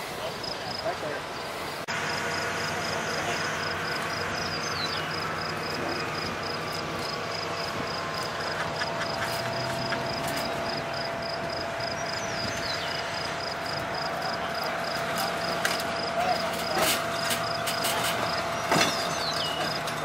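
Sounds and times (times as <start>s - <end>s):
steady rush of noise: 0.0s - 18.2s
insect chirping rapidly: 3.6s - 15.0s.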